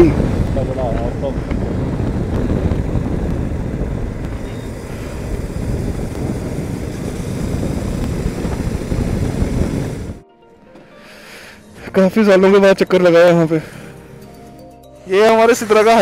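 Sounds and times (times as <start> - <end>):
motorcycle engine running: 0.0 - 10.2
wind buffeting microphone: 0.0 - 10.2.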